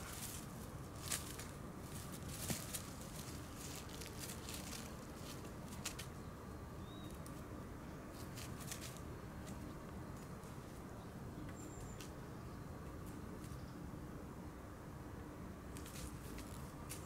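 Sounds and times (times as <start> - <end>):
dogs rustling on leaves: 0.0 - 6.1
high bird chirps: 6.8 - 7.2.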